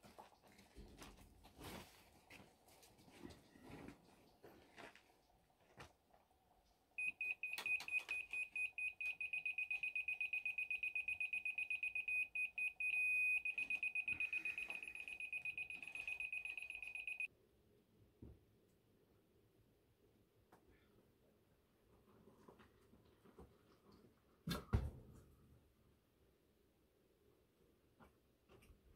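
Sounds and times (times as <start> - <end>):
laser level receiver beeping: 7.0 - 17.3.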